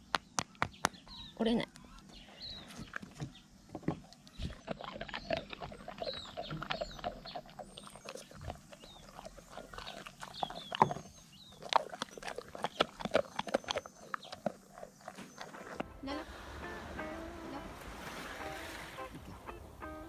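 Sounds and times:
dog chewing hard food: 2.8s - 15.9s.

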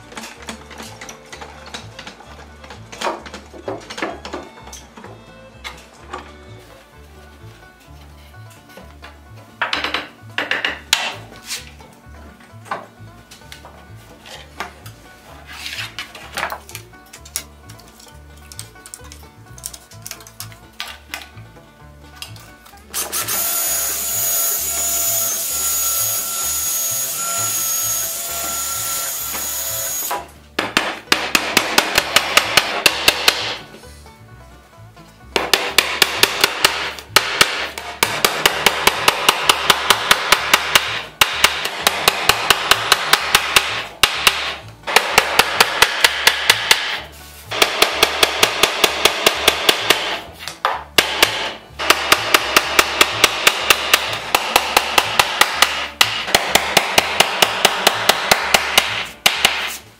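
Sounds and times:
hammer tapping nails into wood: 30.6s - 33.6s, 35.3s - 47.0s.

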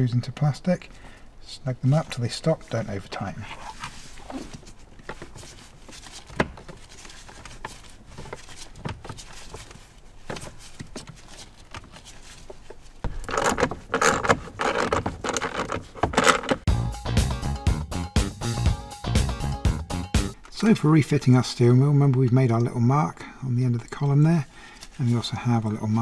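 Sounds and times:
small parts clicking and rattling: 13.1s - 16.7s.

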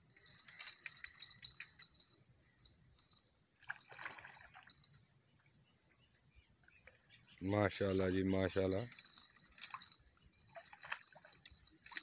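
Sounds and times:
fishing reel clicking: 0.2s - 2.2s, 8.8s - 12.0s
fish splashing: 3.6s - 5.0s, 8.9s - 12.0s.

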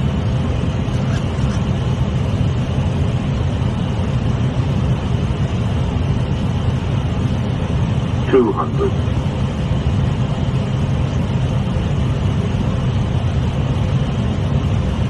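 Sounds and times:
airflow and engines in cockpit: 0.0s - 15.0s.

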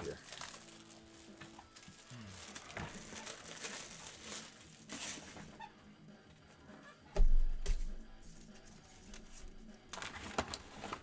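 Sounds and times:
rustling card wrappers: 0.0s - 5.5s, 8.9s - 11.0s.

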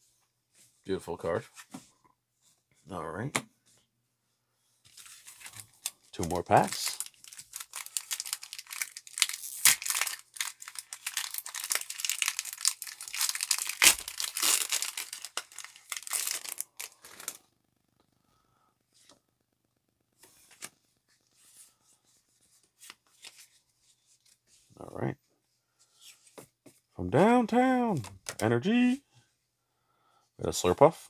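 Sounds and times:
foil wrapper crinkling and tearing: 4.9s - 17.4s.

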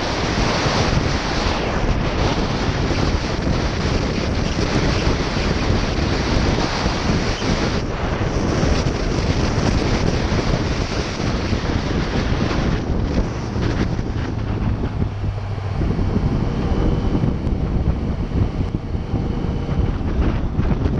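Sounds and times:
wind buffeting microphone: 0.0s - 20.9s.

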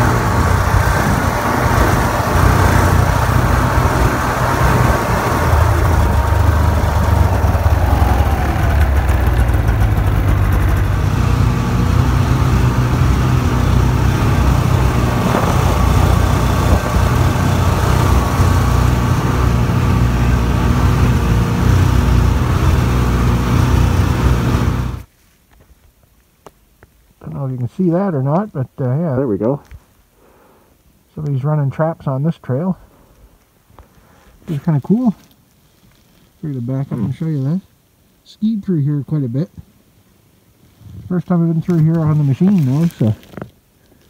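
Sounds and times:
snowmobile engine running: 0.0s - 25.1s.

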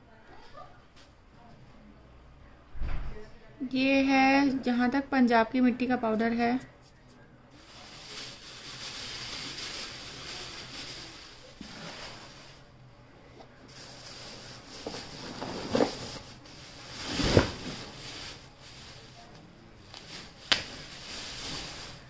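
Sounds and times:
plastic bags rustling: 7.6s - 12.8s, 13.5s - 22.0s.

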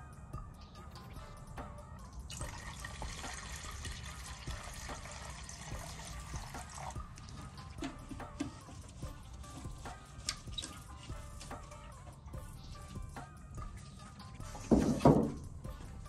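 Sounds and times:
liquid pouring into plastic cup: 2.3s - 8.1s.

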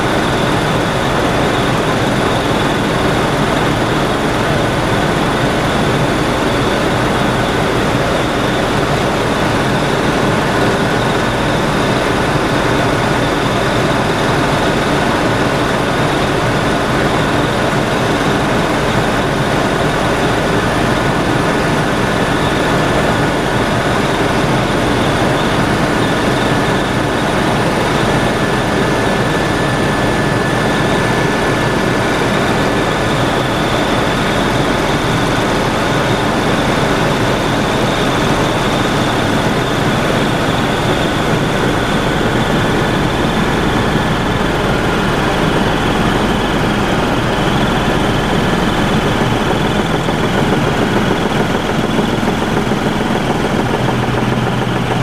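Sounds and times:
helicopter rotor and engine noise: 0.0s - 55.0s.

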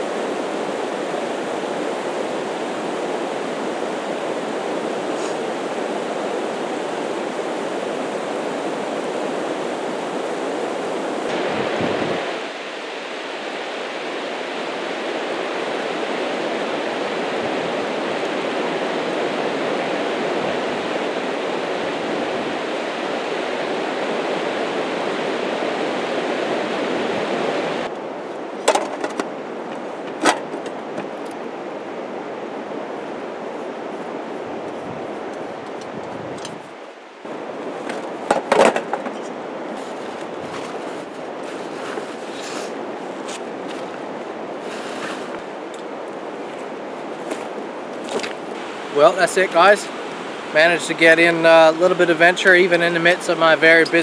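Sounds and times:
river rapids rushing over rocks: 38.8s - 54.0s.

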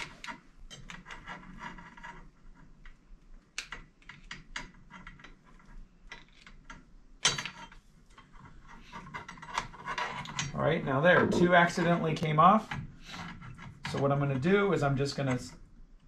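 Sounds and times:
connectors clicking and scraping: 0.0s - 14.1s.

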